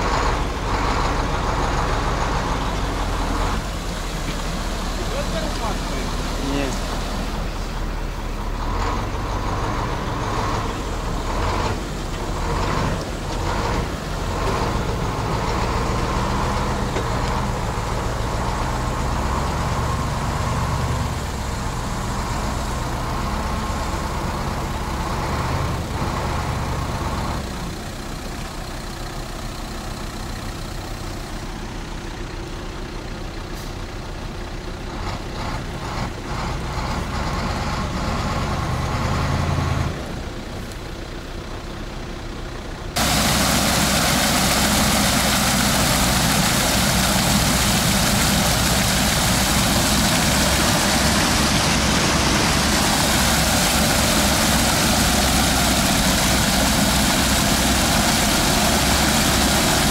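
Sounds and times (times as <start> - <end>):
diesel truck engine running: 0.0 - 59.9.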